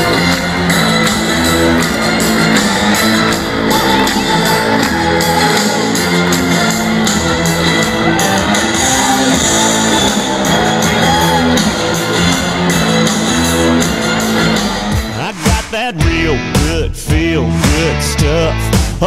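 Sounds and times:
crowd shouting: 0:00.0 - 0:15.2
country-rock band playing: 0:00.0 - 0:19.0
electric guitars: 0:00.0 - 0:19.0.

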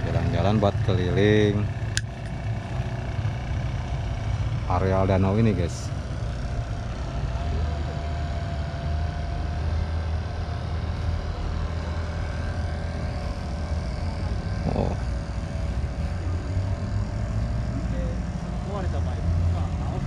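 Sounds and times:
low engine rumble: 0:00.0 - 0:20.0
faint thin whine: 0:04.7 - 0:20.0.

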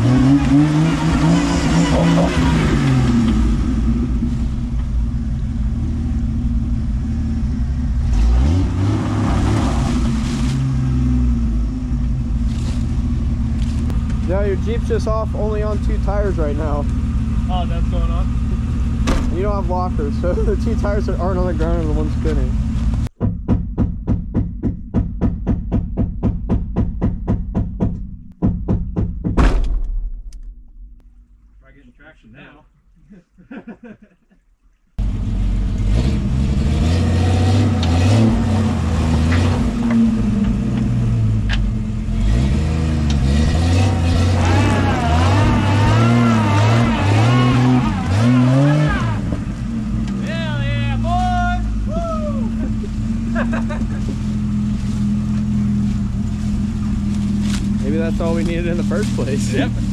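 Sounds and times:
engine revving under load: 0:00.0 - 0:04.4, 0:05.3 - 0:23.1, 0:35.0 - 0:51.0, 0:51.7 - 0:59.9.

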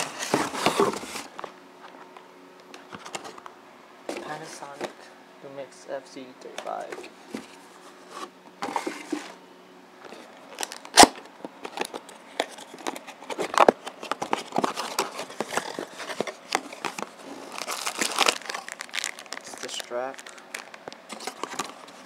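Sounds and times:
plastic packaging crinkling: 0:10.1 - 0:22.0
packaging clicks and knocks: 0:10.6 - 0:21.9.

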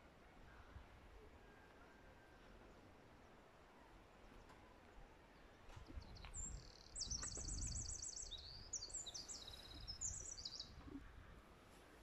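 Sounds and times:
songbird singing with trills: 0:05.9 - 0:10.8.

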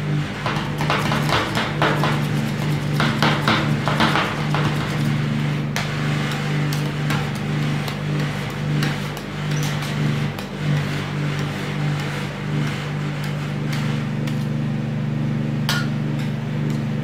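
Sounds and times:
steady low hum: 0:00.0 - 0:17.0
metal spatulas tapping on steel: 0:15.7 - 0:16.8.

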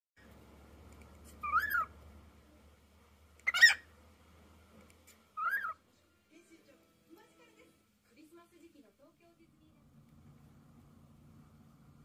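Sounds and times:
cockatiel whistled chirps: 0:01.4 - 0:01.9, 0:05.4 - 0:05.8.

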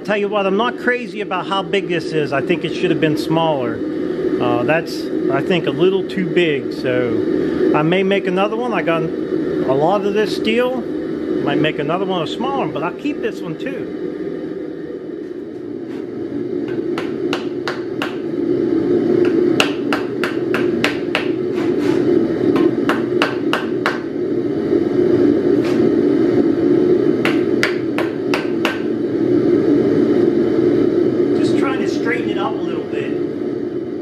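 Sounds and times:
steady low drone: 0:00.0 - 0:34.0
wooden mallet striking hot steel: 0:16.7 - 0:18.3, 0:19.2 - 0:21.8, 0:22.5 - 0:24.1, 0:27.2 - 0:28.9.

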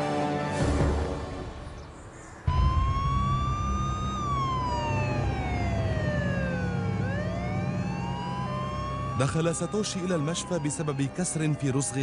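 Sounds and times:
steady low rumble: 0:02.5 - 0:09.2
emergency siren wailing: 0:02.5 - 0:12.0.

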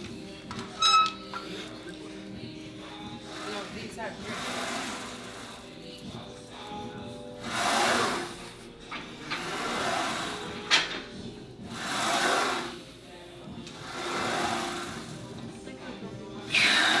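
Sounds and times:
faint background music: 0:00.0 - 0:17.0.

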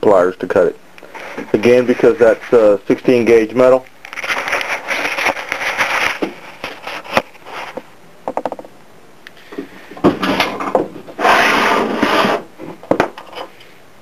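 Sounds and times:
steel block scraping on wood: 0:11.2 - 0:12.5.

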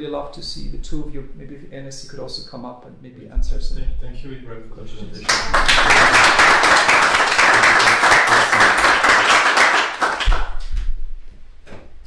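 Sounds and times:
audience applauding: 0:05.2 - 0:10.6.

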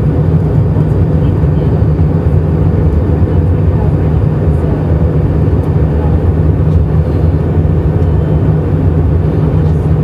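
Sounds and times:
jet airliner cabin drone: 0:00.0 - 0:10.0.

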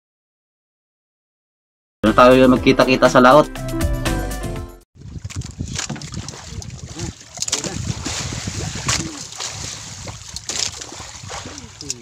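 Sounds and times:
water lapping against boat hull: 0:05.0 - 0:12.0.

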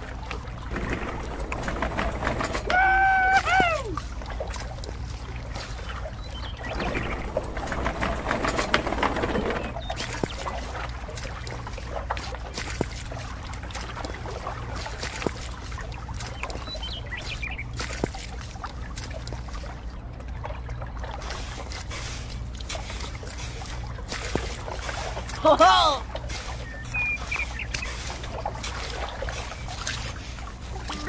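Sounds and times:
low hum: 0:00.0 - 0:31.0
wet cement squelching: 0:21.2 - 0:31.0.

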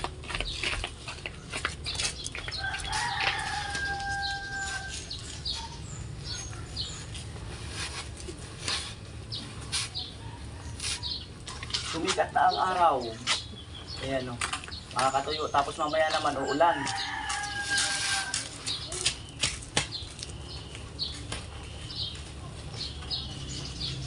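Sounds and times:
rooster crowing: 0:02.6 - 0:05.2, 0:16.4 - 0:18.5.

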